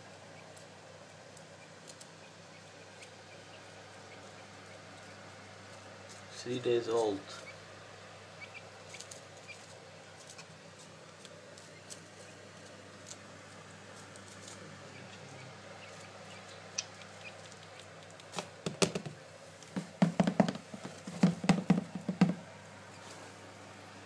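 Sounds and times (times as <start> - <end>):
faint steady hum: 0.0 - 24.0
sharp knocks and rustles: 16.8 - 23.2.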